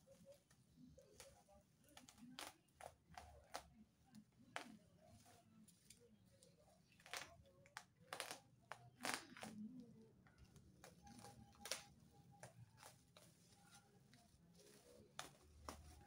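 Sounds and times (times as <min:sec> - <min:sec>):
bubble wrap crackles: 0:04.4 - 0:09.8, 0:10.5 - 0:16.0
bubble wrap rustling: 0:10.5 - 0:16.0.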